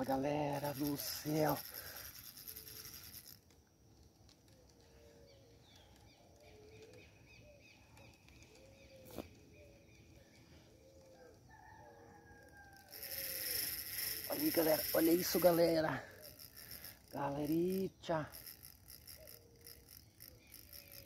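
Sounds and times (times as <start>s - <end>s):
low bird calls: 4.4s - 14.2s.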